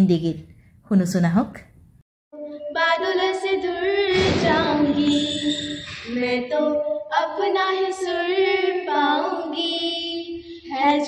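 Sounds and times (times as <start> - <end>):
girls singing unaccompanied: 2.4 - 11.0.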